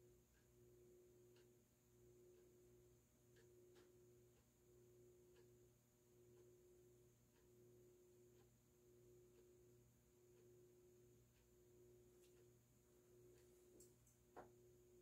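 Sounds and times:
faint ticks: 0.3s - 12.6s.

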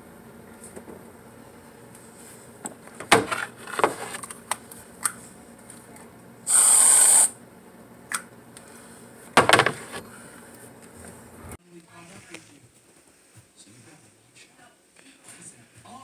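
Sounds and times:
aerosol can hiss: 6.5s - 7.3s
handling knocks and rattles: 9.4s - 10.0s.

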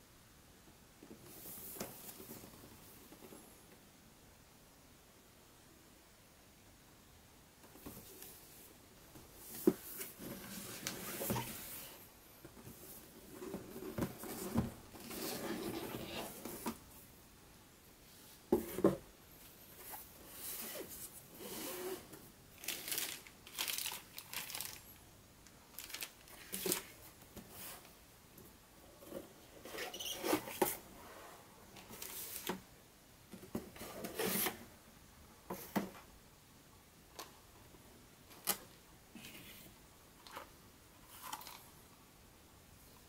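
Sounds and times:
plastic bag crinkling: 22.6s - 24.9s, 25.7s - 26.9s.

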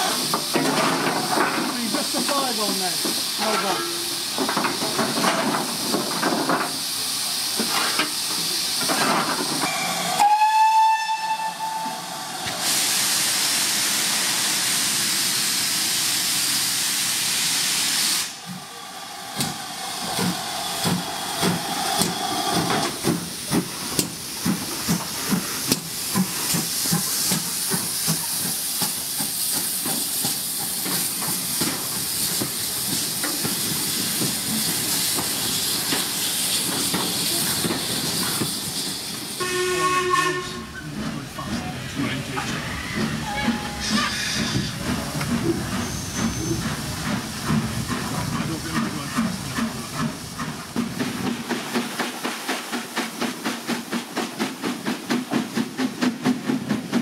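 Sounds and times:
hiss of escaping steam: 0.0s - 57.0s
steam locomotive whistle: 9.6s - 12.1s, 39.4s - 40.8s
train rumble: 18.2s - 57.0s.

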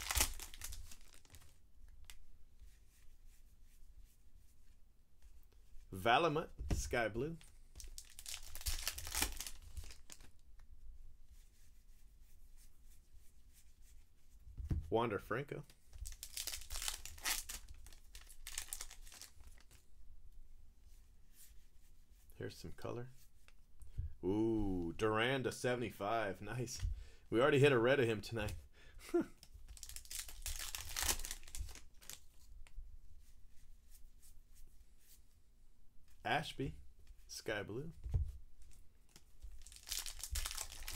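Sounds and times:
cards rustling: 0.0s - 1.6s, 6.7s - 10.3s, 16.0s - 19.8s, 29.6s - 32.5s, 38.6s - 40.9s
foil wrapper crinkling: 0.0s - 1.6s, 7.8s - 10.4s, 16.0s - 19.8s, 29.7s - 32.3s, 39.1s - 40.9s.

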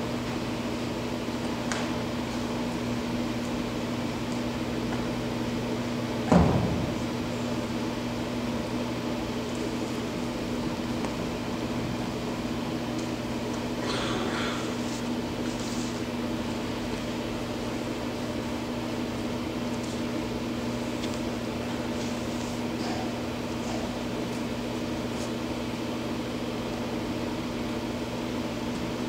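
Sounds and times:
ventilation humming: 0.0s - 29.0s
loud thump: 6.3s - 7.0s.

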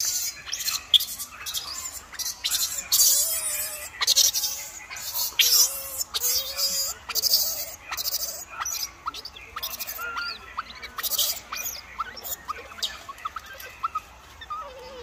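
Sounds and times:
young monkeys squeaking: 0.0s - 15.0s.

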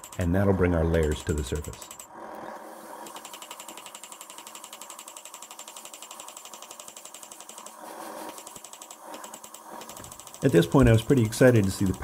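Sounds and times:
rapid hammering on anvil: 0.0s - 2.1s.

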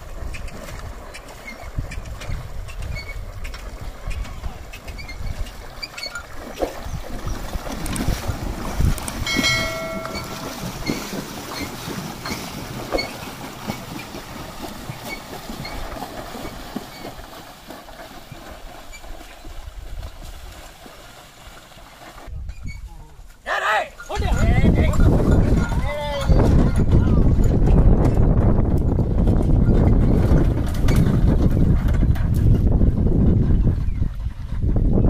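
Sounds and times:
water splashing: 0.0s - 22.4s
cart rattling and knocking: 8.7s - 18.5s, 24.1s - 32.8s
brief ringing tone: 9.2s - 10.7s.

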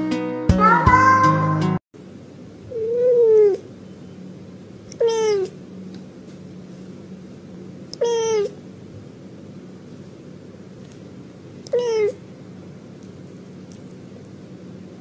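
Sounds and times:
cat meowing: 2.7s - 3.7s, 4.9s - 5.6s, 7.9s - 8.6s, 11.6s - 12.3s.

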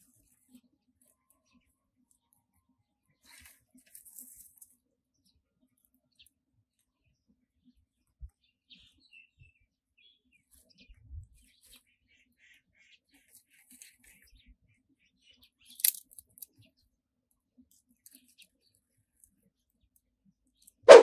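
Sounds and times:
faint bird chirps: 8.3s - 15.8s.

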